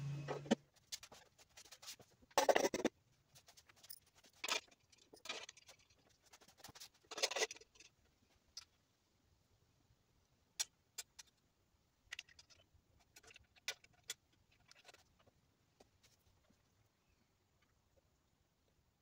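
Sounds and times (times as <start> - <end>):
light clicks and scrapes: 12.1 - 16.7.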